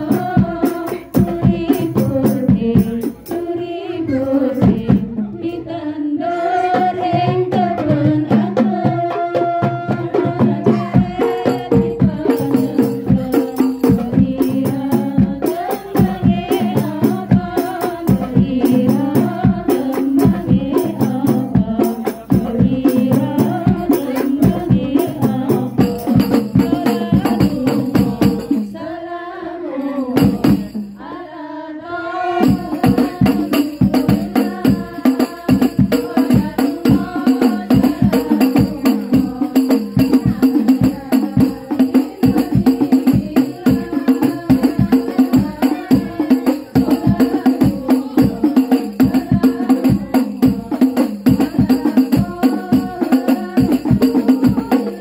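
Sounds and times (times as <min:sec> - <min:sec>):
frame drums and tambourines: 0:00.0 - 0:29.0, 0:30.2 - 0:31.3, 0:32.4 - 0:55.0
solo voice singing: 0:00.0 - 0:31.1, 0:31.8 - 0:55.0
group singing: 0:00.0 - 0:55.0.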